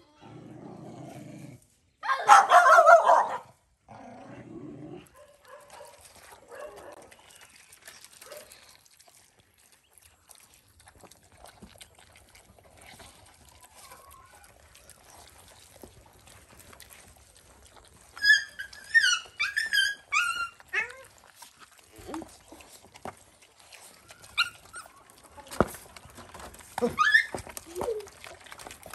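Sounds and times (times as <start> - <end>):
puppies eating smacking: 5.0 - 28.9
puppy whining and yelping: 18.0 - 21.4, 23.8 - 25.2, 26.8 - 28.4.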